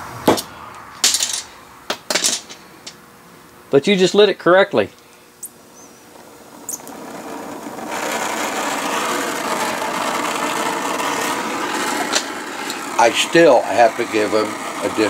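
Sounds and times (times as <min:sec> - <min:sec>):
welding torch hissing: 0:05.3 - 0:15.0.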